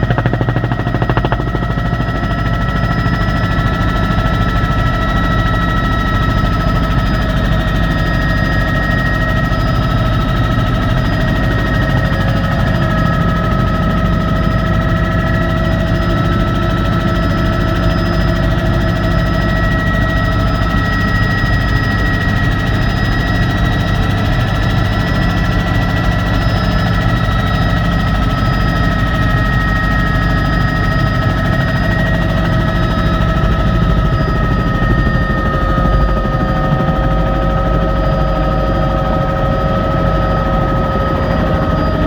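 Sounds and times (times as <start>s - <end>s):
high whining tones: 0.0s - 4.5s
helicopter drone in cockpit: 0.0s - 42.0s.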